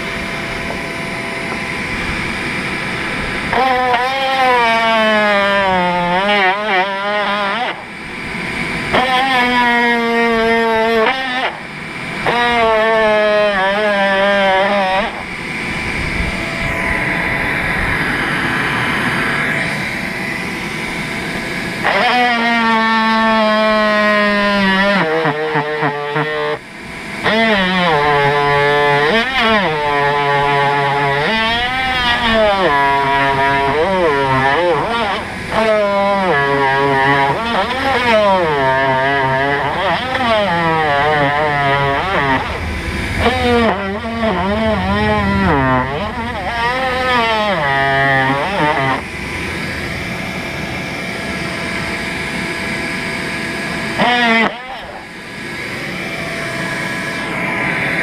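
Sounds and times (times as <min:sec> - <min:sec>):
cordless drill running: 0:00.0 - 0:57.7
power tool buzzing whine: 0:00.0 - 0:58.0
steady rushing noise: 0:15.1 - 0:21.9, 0:31.3 - 0:54.0.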